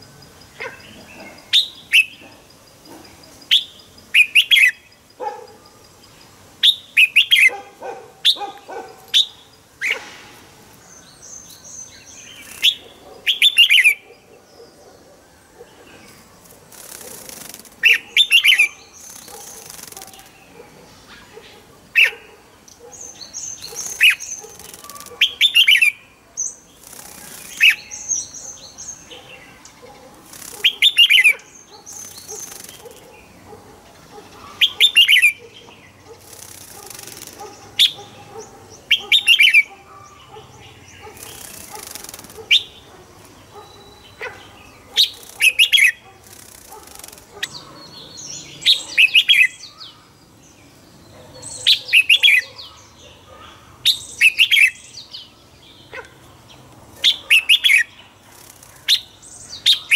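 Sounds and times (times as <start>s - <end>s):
bulbul singing: 0.0s - 7.6s, 43.5s - 49.9s, 53.8s - 59.9s
wing flutters rustling: 16.1s - 18.0s, 19.0s - 20.4s, 23.6s - 25.3s, 26.8s - 27.8s, 30.1s - 30.9s, 31.9s - 33.1s, 36.2s - 37.8s, 41.1s - 42.6s, 45.1s - 45.6s, 46.2s - 47.5s, 58.2s - 58.9s.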